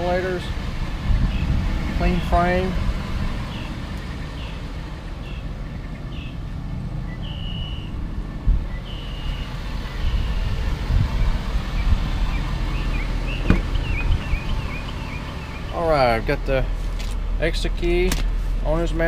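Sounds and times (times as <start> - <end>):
low rumble: 0.0 - 19.0
high bird chirps: 3.5 - 16.0.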